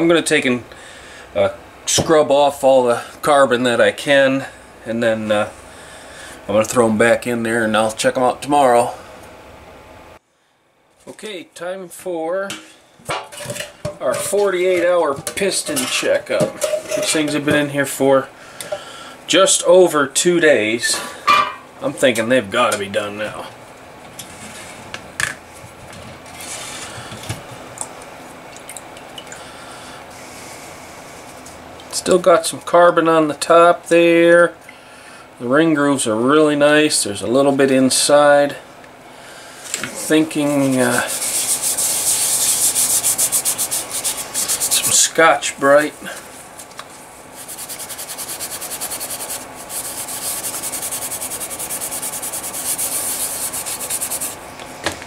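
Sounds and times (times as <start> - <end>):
solvent sloshing and dripping: 28.5 - 29.5
scouring pad scrubbing metal: 40.1 - 45.3, 47.4 - 54.4.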